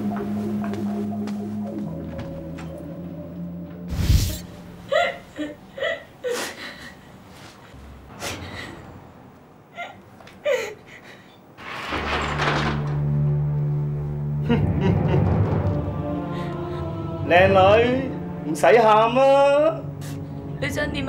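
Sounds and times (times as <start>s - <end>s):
woman whimpering and sobbing: 4.9s - 7.0s.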